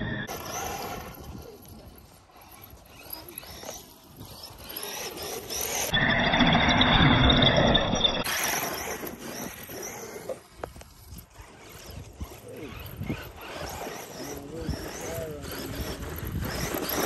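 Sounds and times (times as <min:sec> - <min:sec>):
rc truck electric motor whining: 0:00.0 - 0:17.0.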